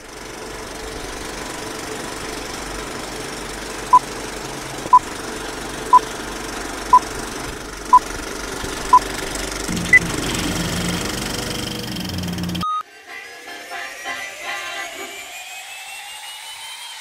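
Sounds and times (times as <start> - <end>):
short countdown beeps: 12.6 - 12.8.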